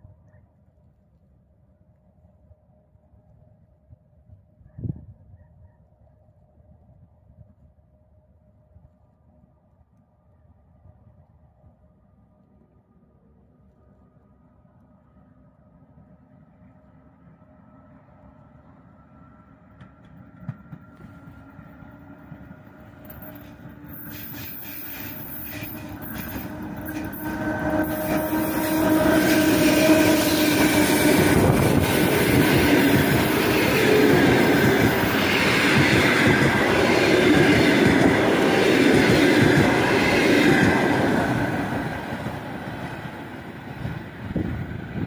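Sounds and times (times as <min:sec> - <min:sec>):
locomotive whine: 0:16.6 - 0:45.0
train wheels rumbling on rails: 0:19.4 - 0:45.0.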